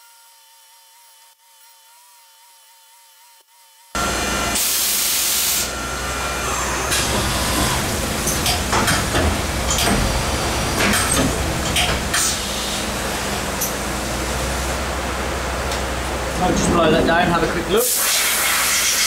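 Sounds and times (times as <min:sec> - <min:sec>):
spraying hiss with whine: 0:04.0 - 0:15.6, 0:17.8 - 0:19.0
machine running: 0:04.0 - 0:19.0.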